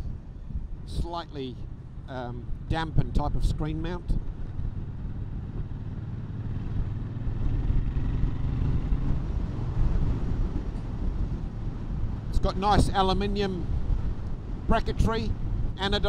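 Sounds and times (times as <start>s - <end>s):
low motor vehicle rumble: 0.0s - 16.0s.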